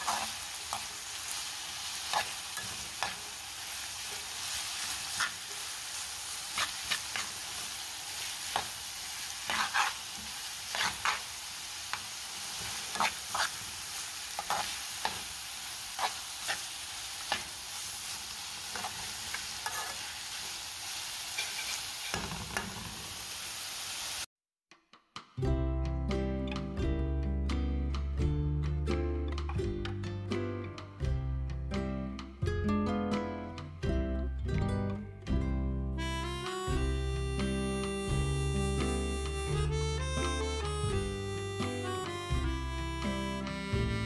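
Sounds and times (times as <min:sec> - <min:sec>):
metal spoon stirring and scraping: 0:00.0 - 0:01.0, 0:01.9 - 0:03.4, 0:04.1 - 0:05.8, 0:06.5 - 0:07.7, 0:08.4 - 0:20.3, 0:21.3 - 0:22.7
food sizzling in a frying pan: 0:00.0 - 0:24.3, 0:36.7 - 0:39.6.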